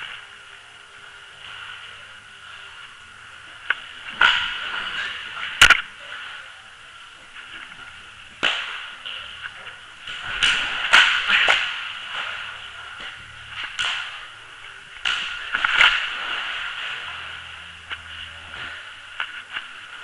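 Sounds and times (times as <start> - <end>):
water sloshing: 7.2 - 20.0.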